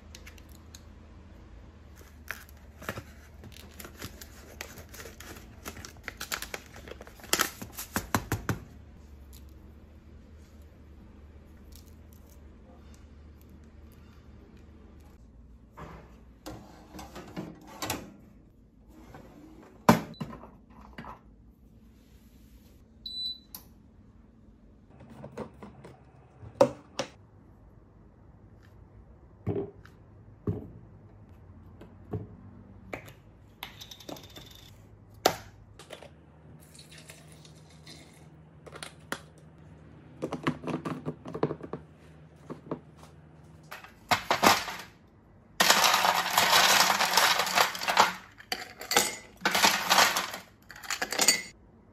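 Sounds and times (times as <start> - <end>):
ice cubes rattling in plastic tray: 44.1 - 44.9, 45.6 - 51.4.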